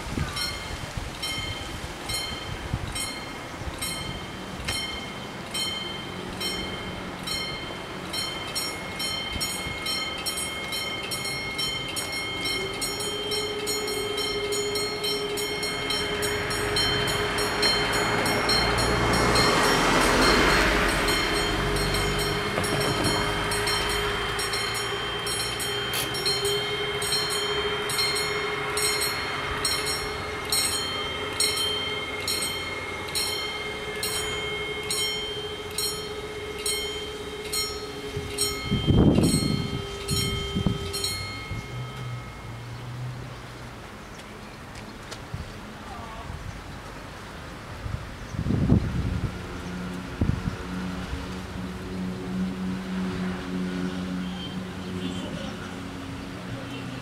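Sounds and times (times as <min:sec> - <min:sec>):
train passing with low rumble: 0:00.0 - 0:57.0
level crossing bells ringing: 0:00.3 - 0:43.4.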